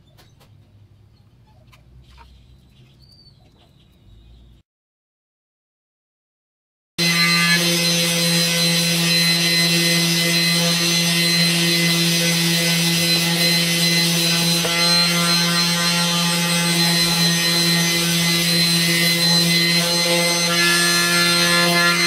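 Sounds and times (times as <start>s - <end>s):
orbital sander motor hum: 7.0s - 22.0s.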